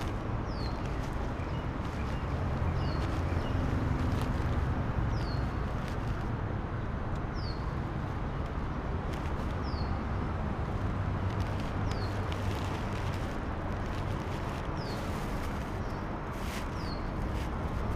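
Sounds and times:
road traffic rumble: 0.0s - 17.9s.

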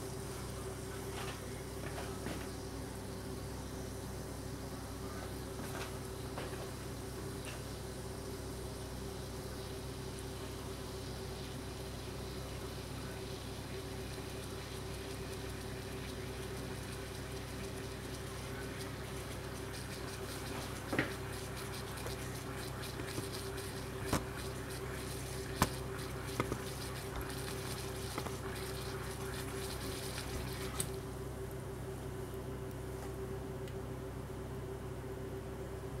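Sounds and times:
steady electrical hum: 0.0s - 36.0s
water fizzing and bubbling: 9.6s - 31.0s.

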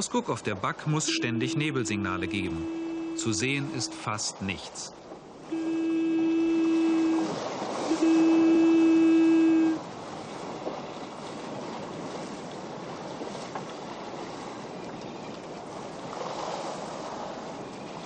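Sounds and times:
sea rushing around ship: 0.0s - 18.0s
foghorn steady note: 1.0s - 4.1s, 5.5s - 9.8s.

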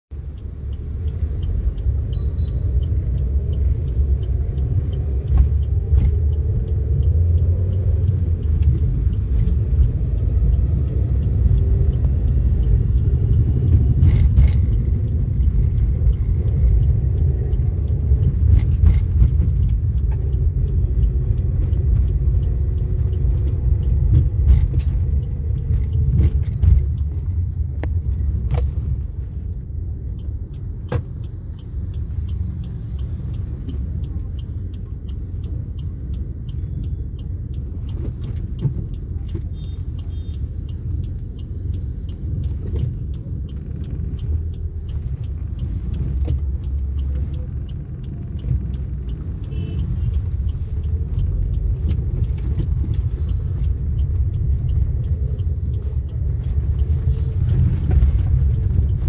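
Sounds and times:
car cabin road and engine rumble: 0.1s - 59.0s.

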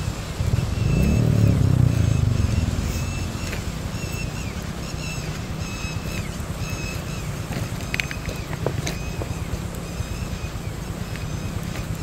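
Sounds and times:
wind noise: 0.0s - 8.9s
suv engine rumbling: 0.0s - 12.0s.

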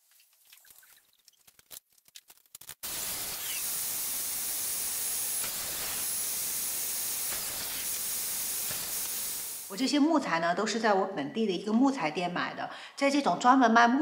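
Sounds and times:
table saw running: 2.8s - 9.7s.

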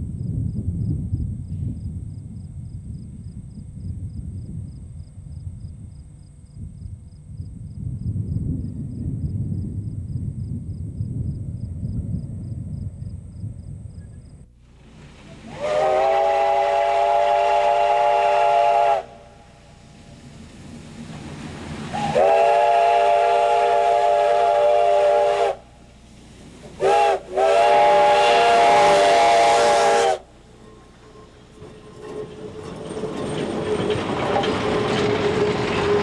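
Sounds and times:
rush of steam: 14.6s - 36.0s
steam whistle blasts: 15.3s - 19.6s, 21.9s - 25.8s, 26.8s - 31.3s.

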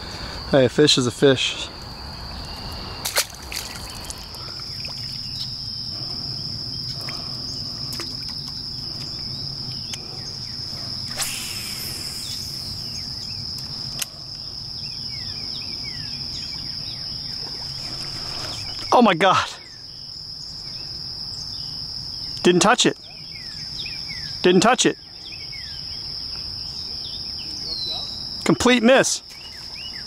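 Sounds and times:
crickets droning: 0.0s - 30.0s
low outdoor hiss: 0.0s - 30.0s
water splash: 3.0s - 4.2s.

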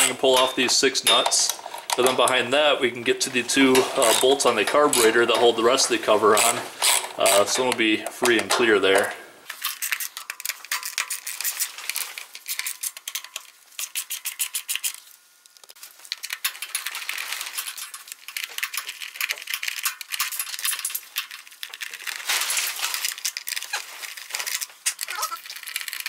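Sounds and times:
hand ratchet clicking: 6.3s - 11.6s.

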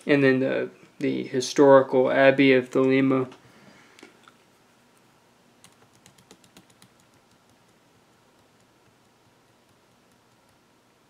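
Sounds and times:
computer keyboard typing: 5.6s - 7.6s.

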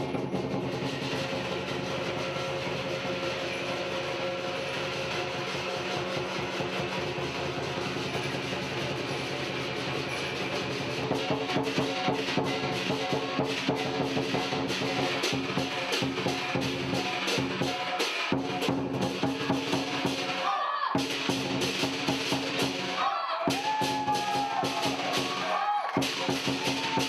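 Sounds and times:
cymbals metallic ringing: 0.0s - 20.4s
drum fast driving beat: 0.0s - 27.0s.

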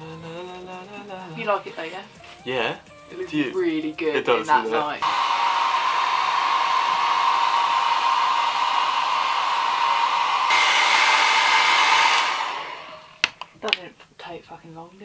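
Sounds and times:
hair dryer blowing: 4.5s - 13.5s.

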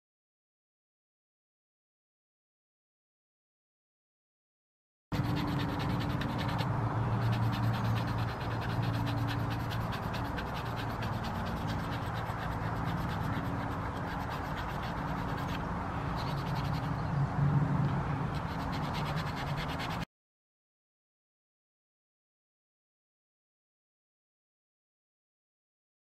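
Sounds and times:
sandpaper sanding wood: 5.2s - 16.9s, 18.4s - 20.1s.

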